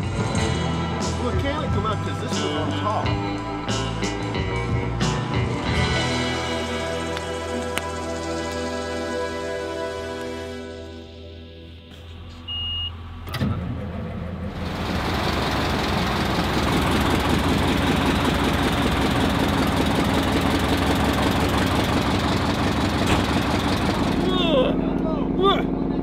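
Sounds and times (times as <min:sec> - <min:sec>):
engine running loudly: 0:05.4 - 0:11.1, 0:13.3 - 0:26.0
short high beep: 0:12.4 - 0:13.0.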